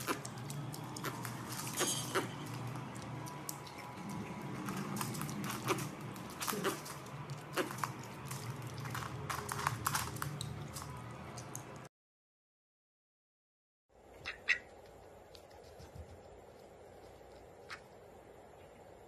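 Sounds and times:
steady low hum: 0:13.9 - 0:19.0.

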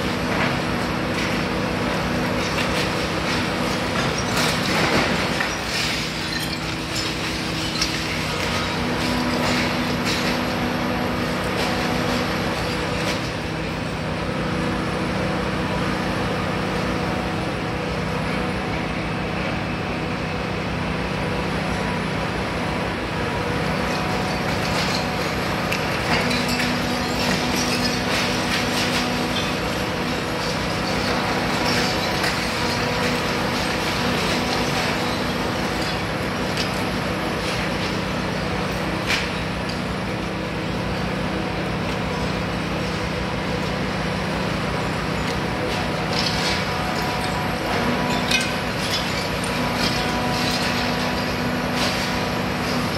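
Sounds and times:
masonry cracking and breaking: 0:00.0 - 0:13.5, 0:23.7 - 0:40.0, 0:45.1 - 0:52.9
diesel engine running: 0:00.0 - 0:52.9.

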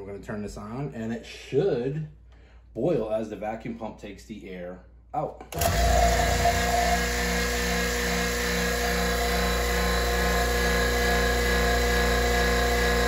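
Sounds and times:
vacuum pump motor hum: 0:05.5 - 0:13.0.

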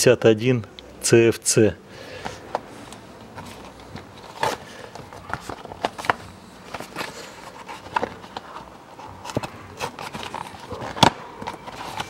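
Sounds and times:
cardboard box rustling: 0:03.2 - 0:12.0.

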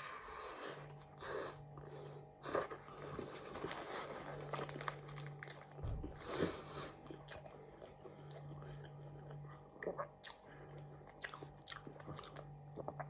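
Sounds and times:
low steady hum: 0:00.0 - 0:13.0
chewing and biting food: 0:02.5 - 0:13.0
paper wrapper crinkling: 0:03.2 - 0:05.8.

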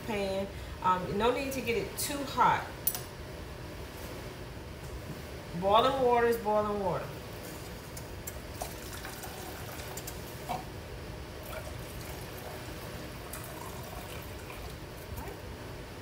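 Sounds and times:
water pouring into a cup: 0:08.5 - 0:10.6, 0:11.4 - 0:15.4.

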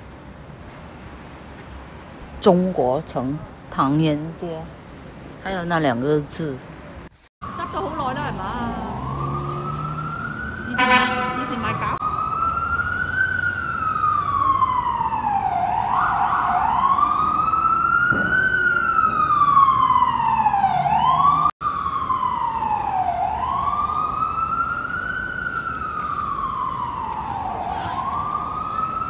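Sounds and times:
siren wailing: 0:07.4 - 0:29.0.

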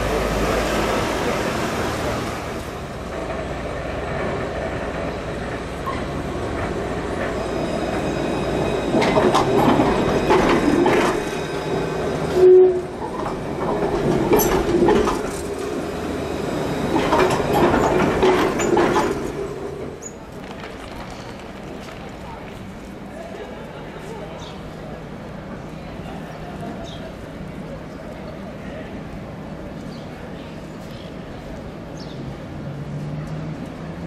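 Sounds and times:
tram wheels clacking over rails: 0:00.0 - 0:23.9
steady tram rumble: 0:00.0 - 0:34.0.

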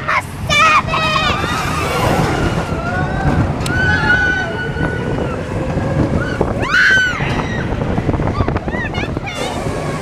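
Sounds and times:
roller coaster rumbling on track: 0:00.0 - 0:10.0
rising shriek: 0:01.2 - 0:08.5.

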